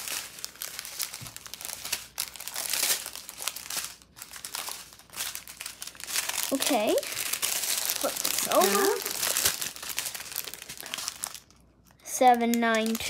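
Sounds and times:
plastic bags rustling and crinkling: 0:00.0 - 0:13.0.

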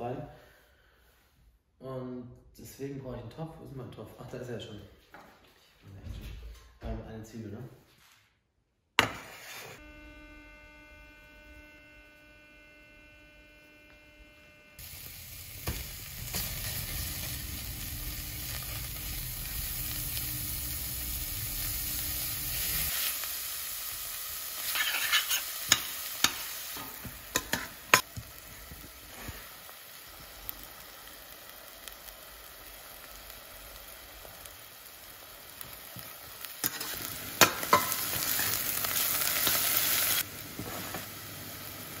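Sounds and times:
onion sizzling in a pot: 0:09.0 - 0:42.0
faint steady hum: 0:09.8 - 0:16.4.

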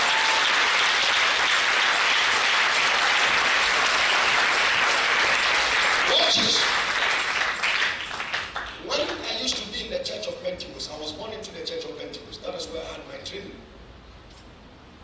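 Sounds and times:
congregation applauding: 0:00.0 - 0:09.3.

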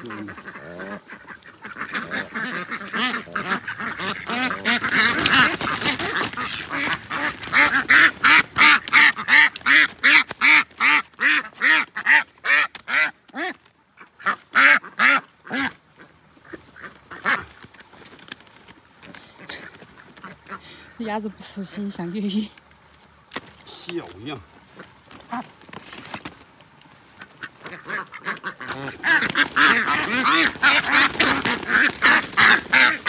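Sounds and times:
duck quacking in alarm: 0:00.0 - 0:13.6, 0:27.3 - 0:33.0.

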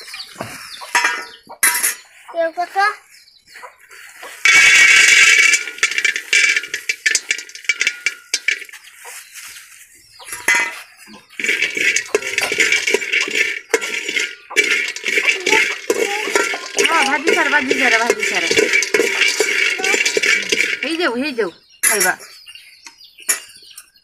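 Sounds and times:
metal spoon stirring peanuts: 0:04.3 - 0:09.4, 0:10.2 - 0:22.4
peanuts poured into metal pot: 0:04.3 - 0:09.4, 0:10.3 - 0:22.1.

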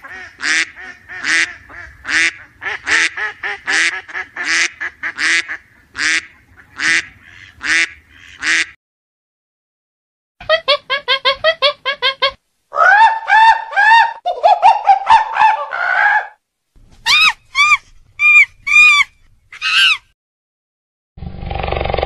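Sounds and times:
monkey calls and screeches: 0:17.0 - 0:20.1.

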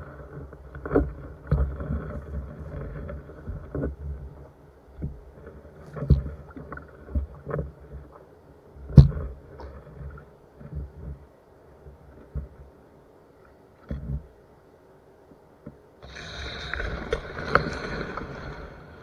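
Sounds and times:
knocks and bumps in a boat: 0:00.2 - 0:08.1, 0:08.8 - 0:11.3.

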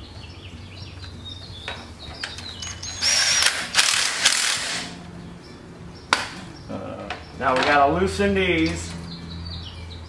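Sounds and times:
cordless drill running: 0:03.0 - 0:05.0.

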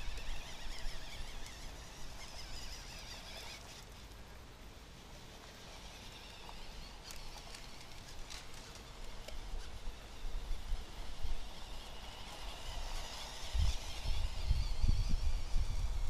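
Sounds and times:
small electric motor and gears buzzing: 0:00.0 - 0:16.0
wind rumble on microphone: 0:12.4 - 0:16.0.

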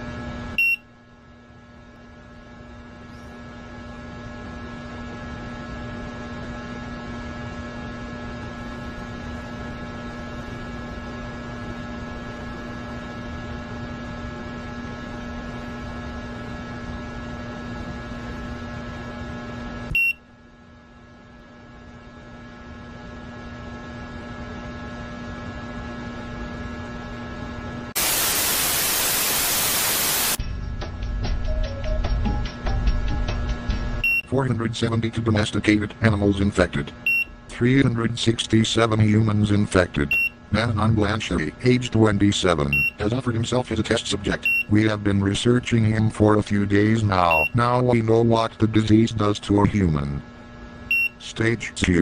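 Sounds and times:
droning hum with held tones: 0:00.0 - 0:52.0
hiss: 0:28.0 - 0:30.4
tv static burst: 0:28.0 - 0:30.4.

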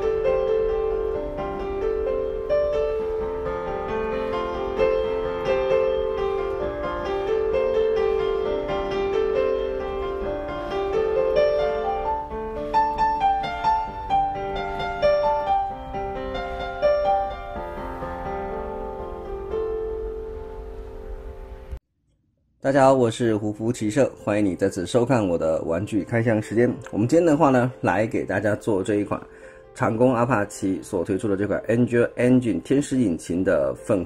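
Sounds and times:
solo piano music: 0:00.0 - 0:21.8, 0:23.6 - 0:34.0.

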